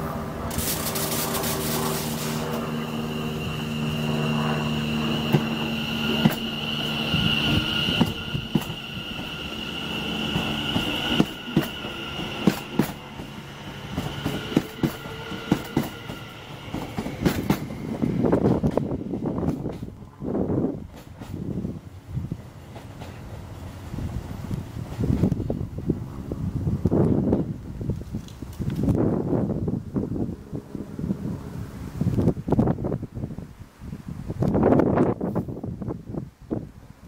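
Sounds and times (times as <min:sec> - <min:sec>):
train whine and hum: 0:00.0 - 0:37.0
rush of air: 0:00.3 - 0:20.8.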